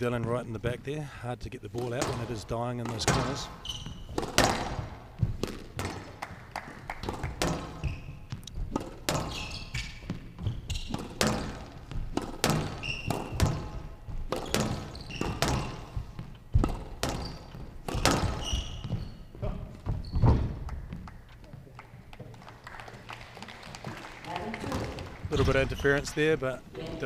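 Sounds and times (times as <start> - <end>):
shoes squeaking on court: 1.8 - 22.1, 24.5 - 26.4
squash ball smacks: 4.1 - 18.5.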